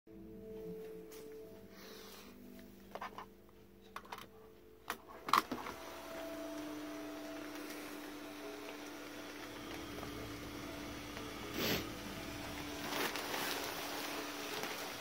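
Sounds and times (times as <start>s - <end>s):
electric blower fan humming: 5.1s - 15.0s.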